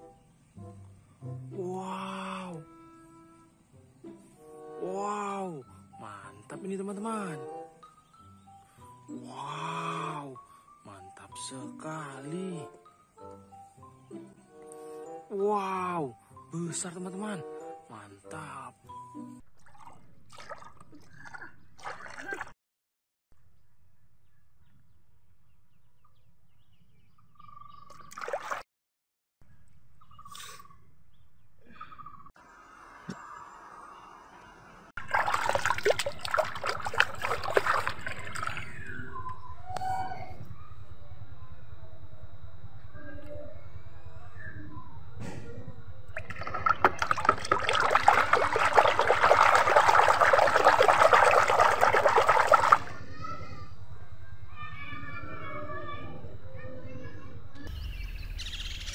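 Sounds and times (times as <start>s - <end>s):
faint bird chirps: 23.6s - 28.2s, 29.4s - 34.7s, 38.6s - 46.0s, 53.1s - 58.9s
water trickling: 28.0s - 28.6s, 35.0s - 38.9s, 46.1s - 53.0s.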